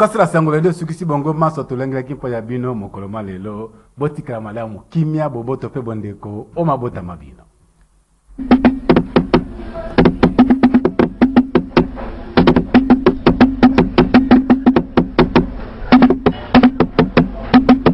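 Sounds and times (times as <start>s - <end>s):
fast percussion hits: 8.4s - 17.9s.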